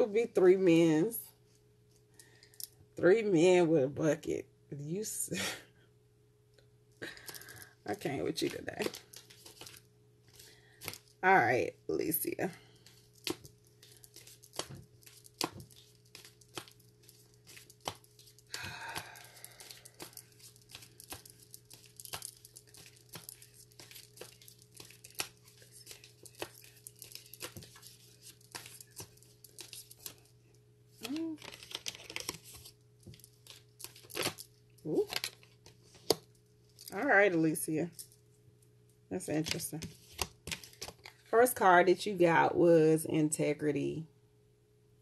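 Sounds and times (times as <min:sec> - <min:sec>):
cards rustling: 0:08.3 - 0:11.2, 0:12.7 - 0:30.3, 0:31.0 - 0:36.9, 0:39.8 - 0:41.2
cards clicking and snapping: 0:12.9 - 0:30.2, 0:31.0 - 0:34.5.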